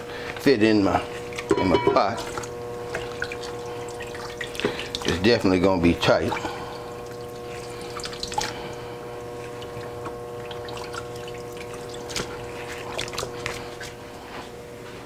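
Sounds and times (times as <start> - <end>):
electrical hum: 0.0 - 15.0
water dripping and trickling: 2.2 - 5.2, 6.3 - 13.9
small wet clicks: 6.4 - 8.8, 9.4 - 14.0.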